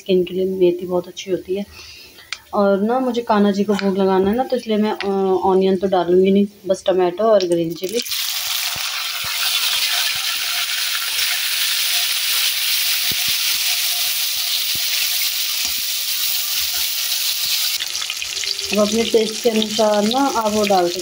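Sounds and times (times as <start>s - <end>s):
vegetables sizzling in oil: 7.7s - 21.0s.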